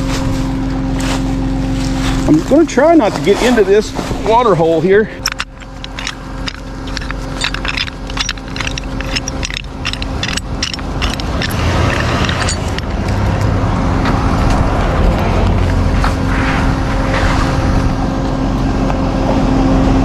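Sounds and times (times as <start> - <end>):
truck engine running: 0.0 - 20.0
loose items clattering: 4.2 - 13.6.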